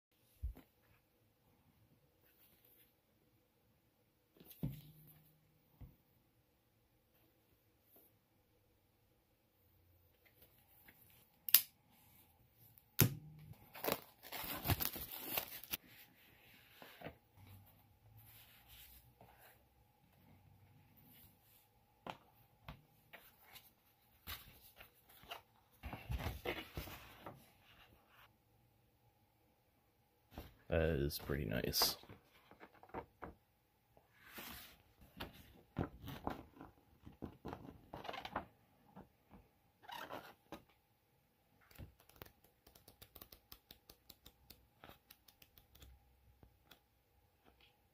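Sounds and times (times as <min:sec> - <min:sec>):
plastic wrap crinkling and tearing: 0:13.7 - 0:15.8.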